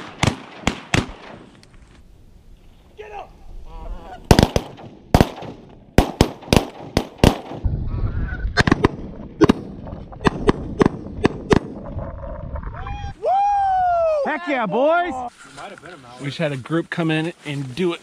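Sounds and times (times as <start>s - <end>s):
shotgun blasts: 0.0s - 1.5s, 4.3s - 7.7s, 8.6s - 11.8s.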